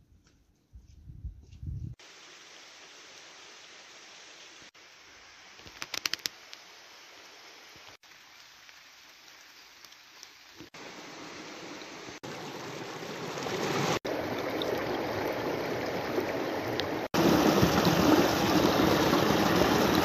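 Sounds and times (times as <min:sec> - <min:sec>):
stream water rushing over rocks: 0:10.8 - 0:20.0.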